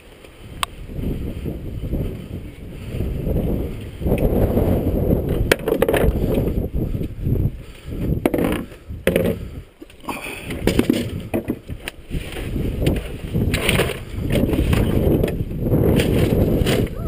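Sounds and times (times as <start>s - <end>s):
plastic coolers shifting: 8.2s - 17.0s.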